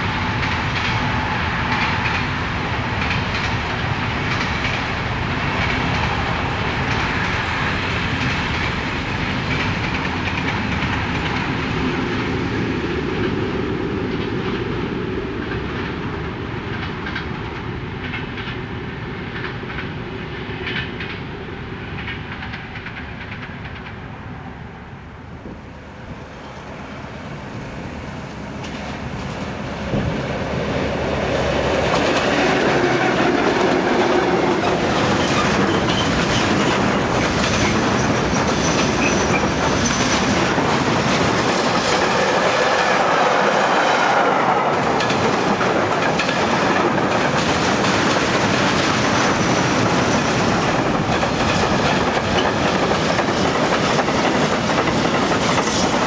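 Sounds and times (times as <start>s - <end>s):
train wheels clattering over rail joints: 2.9s - 12.3s, 31.4s - 44.1s, 44.7s - 56.0s.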